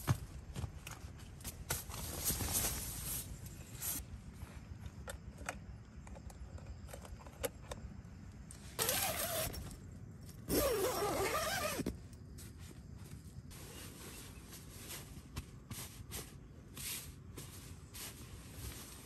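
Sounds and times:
zipper pulled: 0:08.8 - 0:09.7, 0:10.5 - 0:11.9.

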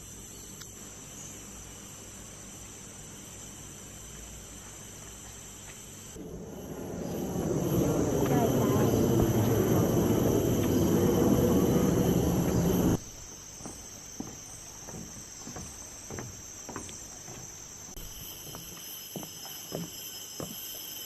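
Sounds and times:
high-pitched insect chorus: 0:00.0 - 0:21.0
footsteps on wooden boardwalk: 0:04.6 - 0:21.0
loud low rushing noise: 0:06.2 - 0:13.0.

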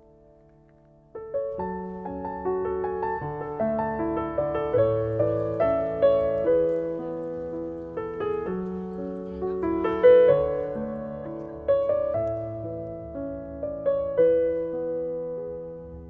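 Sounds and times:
piano music: 0:00.0 - 0:16.0.

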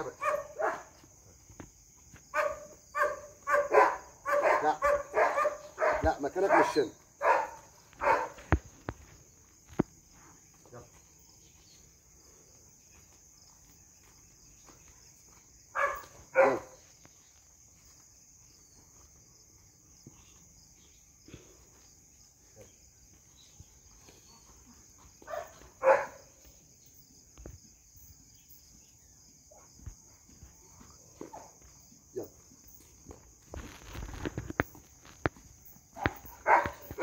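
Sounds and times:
puppy barking: 0:00.0 - 0:00.9, 0:02.4 - 0:08.4, 0:15.8 - 0:16.8, 0:25.2 - 0:26.2, 0:36.0 - 0:37.0
high insect drone: 0:00.0 - 0:37.0.

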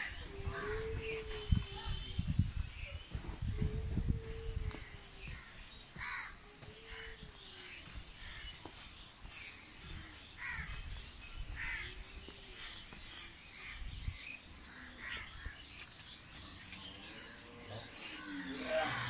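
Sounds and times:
small birds chirping: 0:00.0 - 0:19.0
crows cawing: 0:06.0 - 0:06.4.

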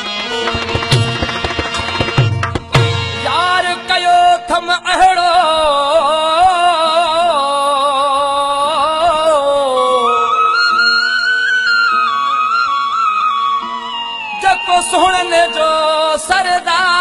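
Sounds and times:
sliding high folk melody: 0:00.0 - 0:04.4
drum strokes: 0:00.3 - 0:03.4.

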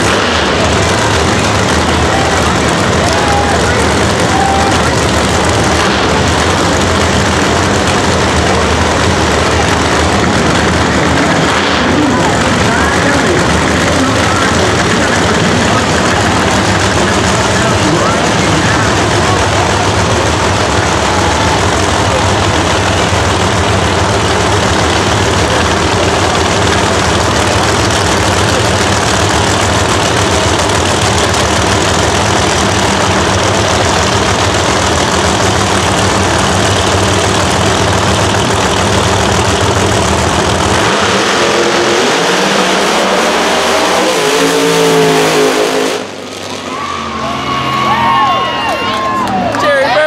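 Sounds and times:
cars launching and pulling away: 0:00.0 - 0:49.5
drag car engines running: 0:00.0 - 0:50.0.

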